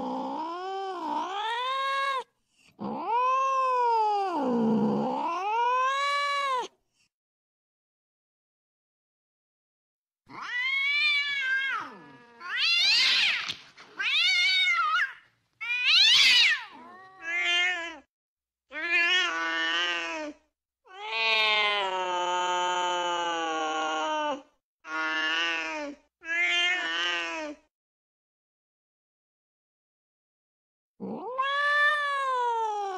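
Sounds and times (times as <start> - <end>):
cat yowling: 2.8 - 6.7, 10.3 - 18.1, 31.0 - 32.9.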